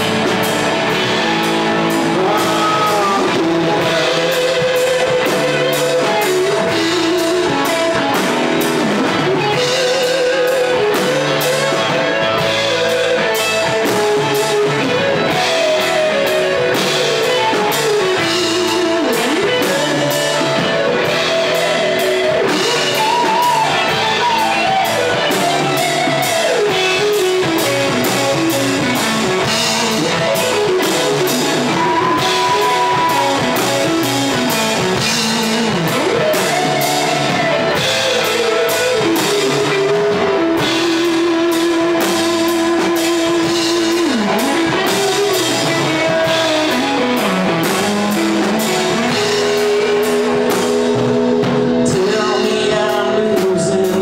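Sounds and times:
bending lead guitar line: 0.0 - 54.0
live rock band playing: 0.0 - 54.0.

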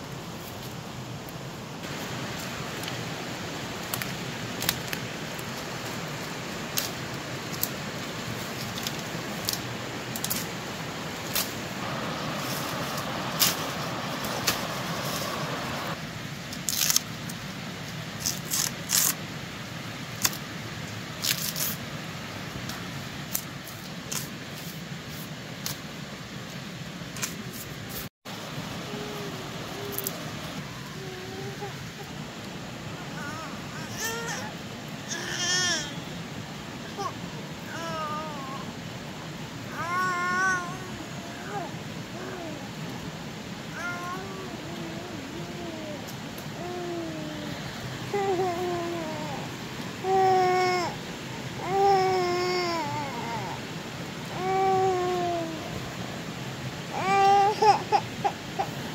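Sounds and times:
leaves and stalks rustling: 0.0 - 58.9.

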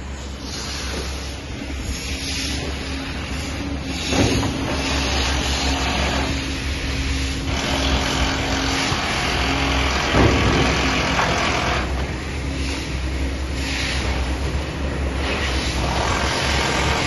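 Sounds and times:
heavy machinery engine running: 0.0 - 17.0.

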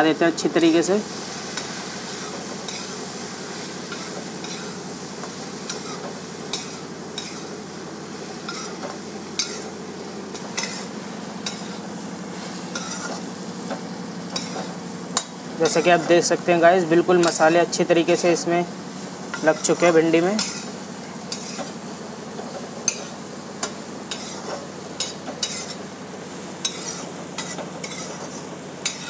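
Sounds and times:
low frying sizzle: 0.0 - 29.0
metal spatula scraping a pan: 3.9 - 4.8, 5.6 - 7.5, 8.4 - 8.8, 9.4 - 9.7, 10.3 - 11.8, 12.4 - 13.3, 14.3 - 16.1, 19.3 - 21.8, 22.8 - 25.8, 26.6 - 29.0.

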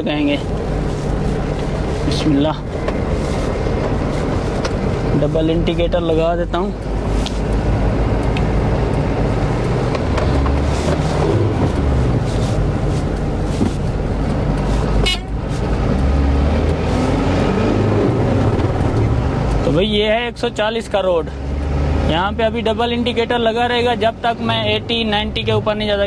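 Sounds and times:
diesel truck engine revving: 0.0 - 26.0.

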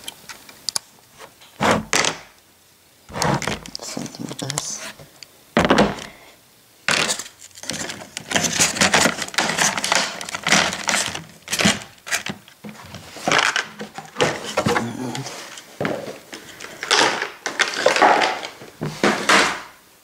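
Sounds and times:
stiff plastic packaging crinkling: 6.9 - 15.6, 16.4 - 19.4.

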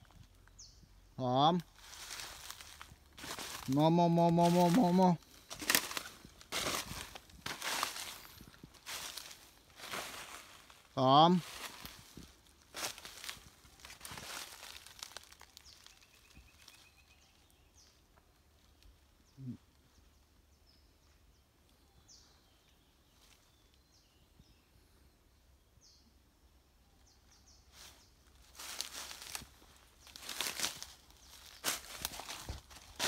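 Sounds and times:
footsteps crunching through dry leaves: 1.6 - 17.2, 27.7 - 33.0
faint bird chirps: 12.8 - 32.9.

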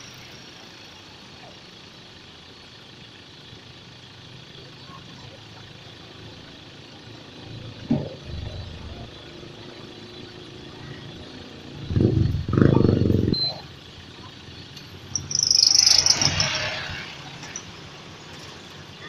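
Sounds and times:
truck engine surge: 14.9 - 19.0
harsh high-pitched screech: 15.1 - 17.6.

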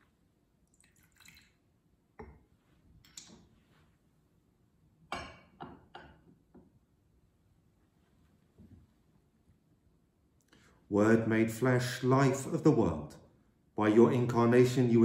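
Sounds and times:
liquid pouring into chalice: 0.6 - 1.9.

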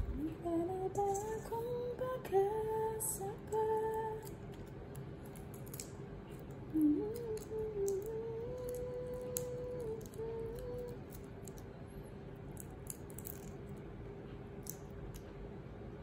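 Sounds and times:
shrimp shells being peeled: 3.5 - 13.9, 14.5 - 15.4
woman humming: 6.7 - 11.2.

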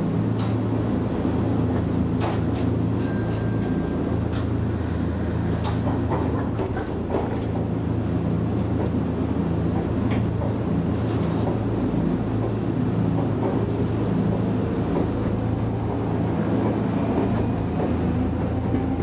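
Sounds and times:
train low hum: 0.0 - 19.0.

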